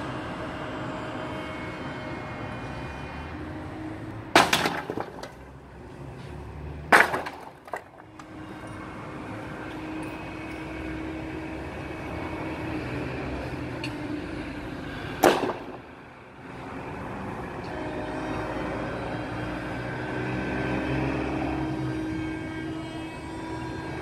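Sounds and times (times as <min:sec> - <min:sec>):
low city hum: 0:00.0 - 0:24.0
debris crashing onto ground: 0:04.4 - 0:05.4, 0:06.9 - 0:08.0.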